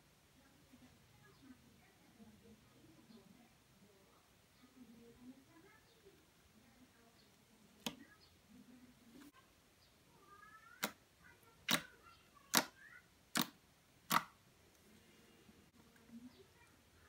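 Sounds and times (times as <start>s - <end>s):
fingers popping thick slime: 13.3s - 14.4s.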